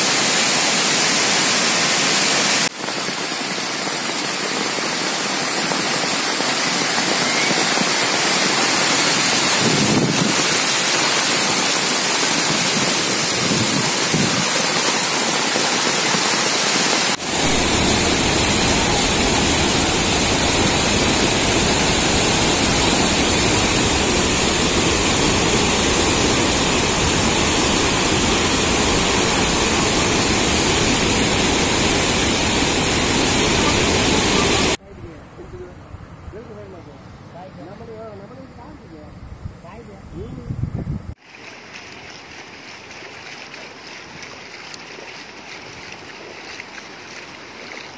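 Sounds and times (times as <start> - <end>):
heavy rain: 0.0 - 34.8
rushing floodwater: 0.0 - 35.7, 41.2 - 47.9.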